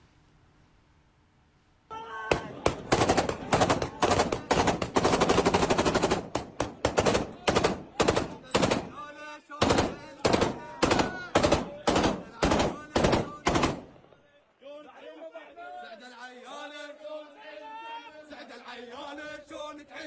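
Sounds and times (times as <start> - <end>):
automatic gunfire: 2.3 - 14.0.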